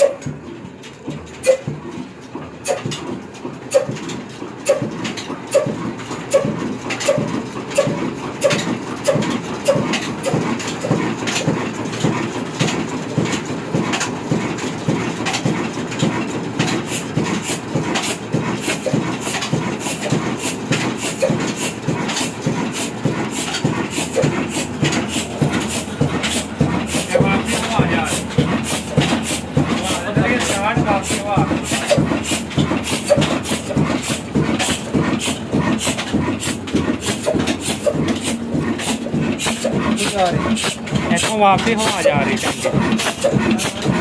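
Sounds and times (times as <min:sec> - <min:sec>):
diesel engine thumping: 0:00.0 - 0:44.0.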